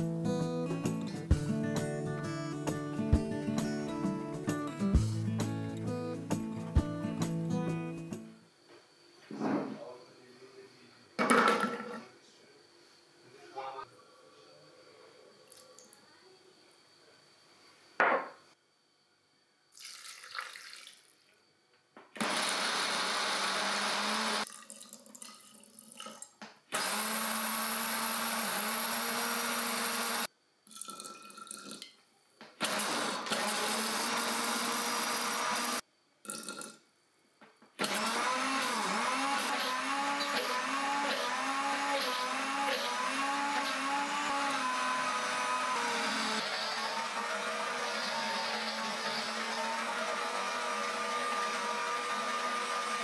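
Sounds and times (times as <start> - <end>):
blender grinding: 22.2 - 24.5, 26.7 - 30.3, 32.6 - 35.8, 37.8 - 53.0.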